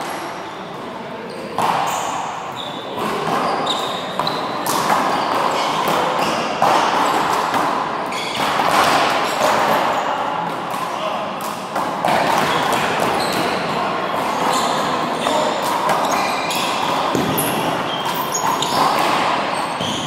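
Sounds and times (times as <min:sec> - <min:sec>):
handball smacking wall and floor: 0:03.0 - 0:13.7, 0:15.5 - 0:20.0.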